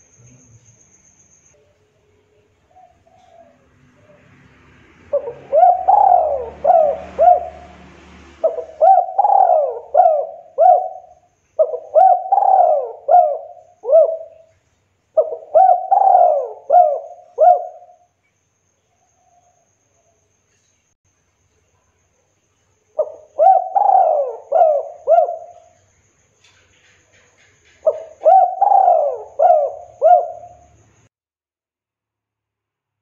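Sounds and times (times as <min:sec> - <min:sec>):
dove cooing: 0:02.7 - 0:04.3, 0:05.0 - 0:14.5, 0:15.2 - 0:18.0, 0:23.0 - 0:25.8, 0:27.8 - 0:30.8.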